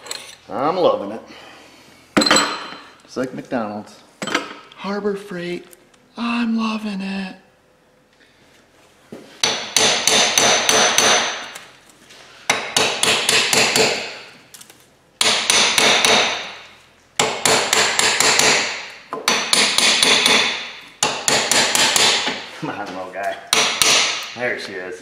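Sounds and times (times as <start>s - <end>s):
hammer striking steel: 9.4s - 11.6s, 12.5s - 14.2s, 15.2s - 22.5s, 23.5s - 24.4s.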